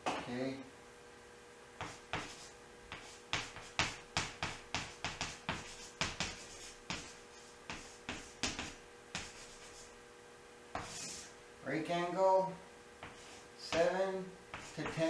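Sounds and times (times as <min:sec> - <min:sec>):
chalk writing on chalkboard: 0:01.8 - 0:09.9, 0:10.8 - 0:11.3, 0:13.0 - 0:15.0.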